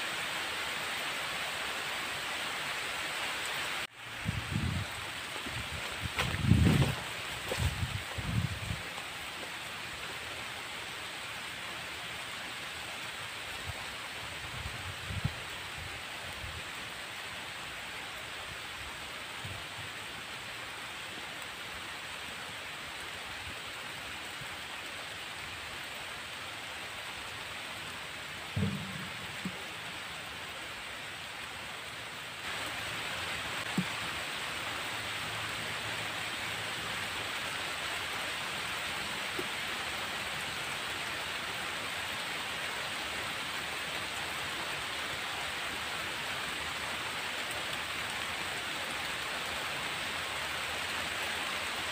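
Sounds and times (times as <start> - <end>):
steady rain falling: 0.0 - 51.9
brief low thump: 28.6 - 30.2.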